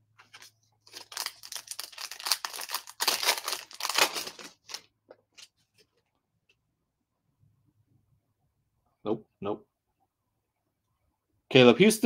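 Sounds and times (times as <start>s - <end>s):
wrapper tearing and crinkling: 0.4s - 4.9s.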